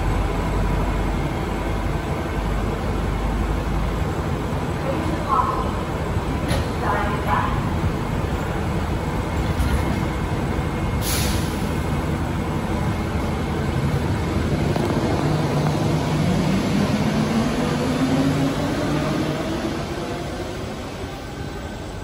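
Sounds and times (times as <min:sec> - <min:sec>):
train running noise: 0:00.0 - 0:22.0
air hiss: 0:11.0 - 0:11.7.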